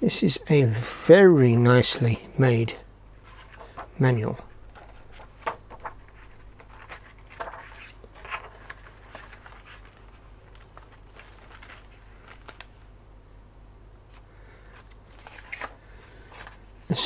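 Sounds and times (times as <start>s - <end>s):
low steady hum: 0.0s - 17.0s
paper pages rustling: 3.2s - 12.9s, 14.1s - 17.0s.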